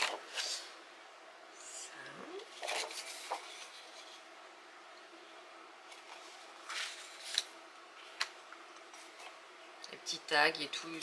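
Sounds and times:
paper rustling: 2.5 - 4.2, 5.9 - 9.4.

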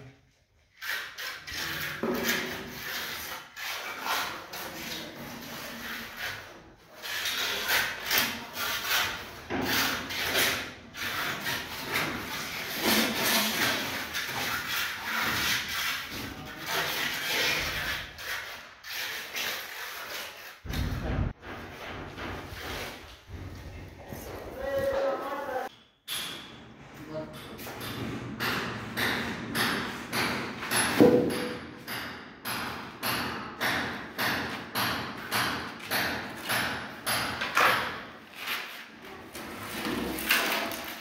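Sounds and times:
trowel scraping wet concrete: 0.7 - 20.6.

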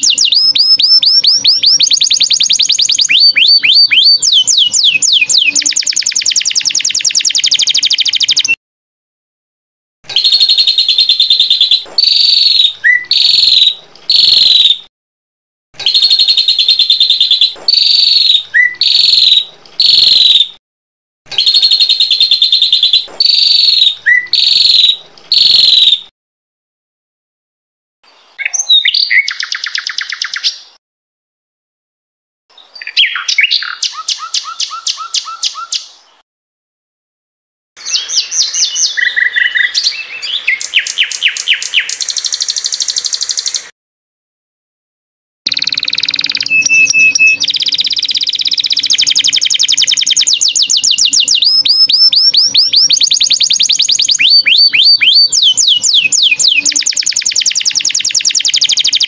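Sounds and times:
songbird trilling and chattering: 0.0 - 8.6, 45.5 - 59.0.

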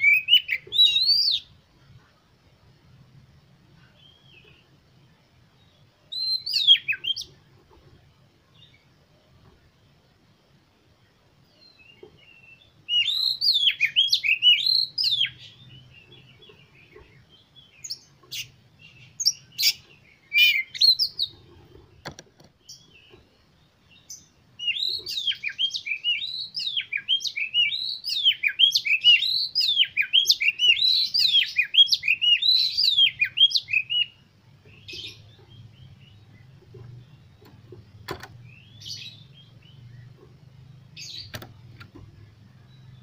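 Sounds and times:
bird singing whistled phrases: 0.0 - 1.5, 6.1 - 7.3, 12.5 - 15.6, 19.2 - 21.3, 24.6 - 34.2.

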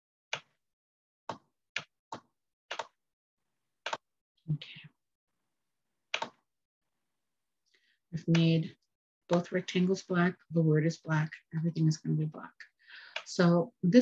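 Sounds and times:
computer mouse clicking: 2.7 - 3.0, 6.1 - 6.4.

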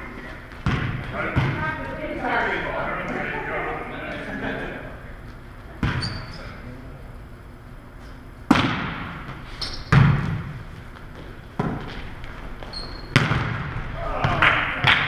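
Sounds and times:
volleyball hits echoing: 0.5 - 2.0, 8.5 - 10.6, 11.6 - 12.1, 13.0 - 15.0
sneaker squeak: 5.8 - 6.6, 9.5 - 10.0, 12.6 - 13.3.

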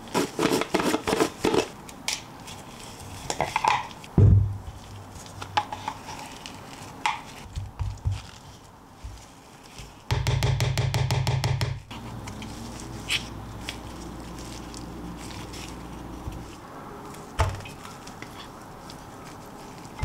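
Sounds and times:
wooden spoon scraping cream: 0.0 - 1.8, 4.7 - 10.1, 11.9 - 20.0.

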